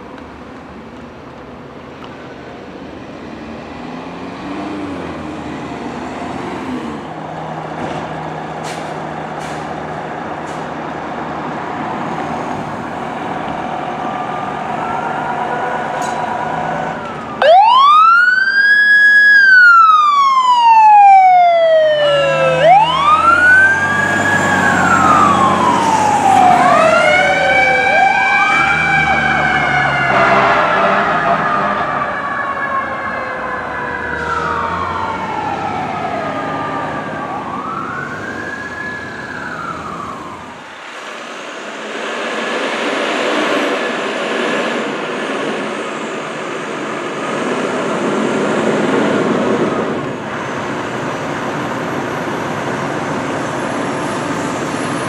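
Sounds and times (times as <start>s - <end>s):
siren wailing: 13.4s - 40.8s
lower siren tone: 13.6s - 40.8s.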